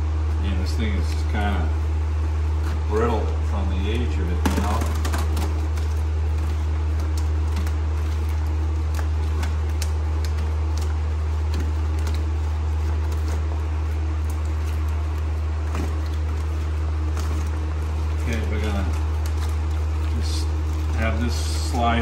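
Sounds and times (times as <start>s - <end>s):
steady low hum: 0.0s - 22.0s
plastic sheet crinkling as peeled: 4.4s - 22.0s.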